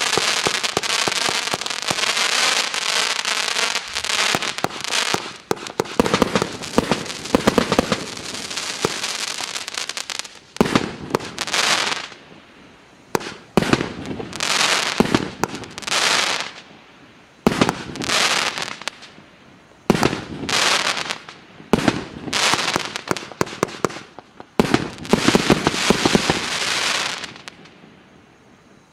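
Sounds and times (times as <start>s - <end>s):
firework battery shots: 0.0s - 12.2s
firework crackle: 0.0s - 28.8s
firework pops: 3.8s - 8.1s, 8.8s - 9.1s, 13.2s - 14.3s.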